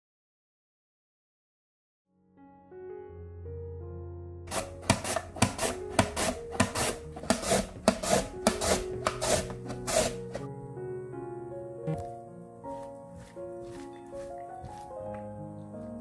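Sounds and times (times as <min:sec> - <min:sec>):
background music: 0:02.2 - 0:16.0
knife rasping through carrot: 0:04.5 - 0:10.5.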